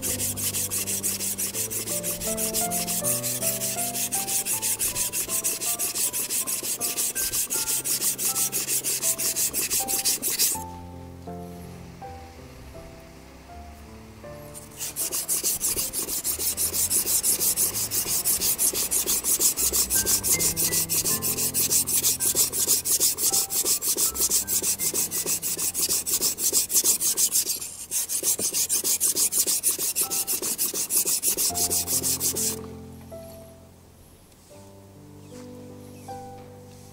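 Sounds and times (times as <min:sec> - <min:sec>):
knife scraping on whetstone: 0:00.0 - 0:10.6, 0:14.6 - 0:32.6.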